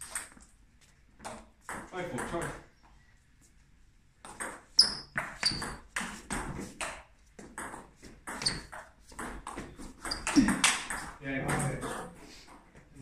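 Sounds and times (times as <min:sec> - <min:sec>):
table tennis ball hits: 0:01.2 - 0:02.6, 0:04.2 - 0:11.9.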